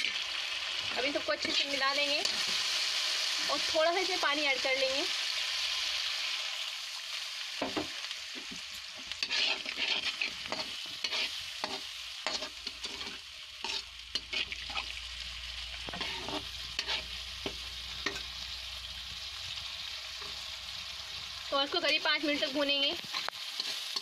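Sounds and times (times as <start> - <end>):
onions sizzling in a pan: 0.0 - 24.0
metal spoon scraping a pan: 1.0 - 2.6, 9.1 - 15.0, 15.8 - 18.4, 21.7 - 24.0.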